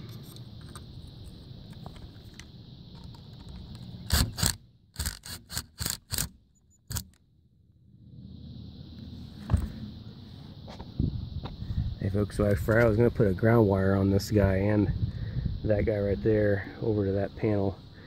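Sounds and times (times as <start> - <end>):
drill driving a screw: 4.1 - 7.2.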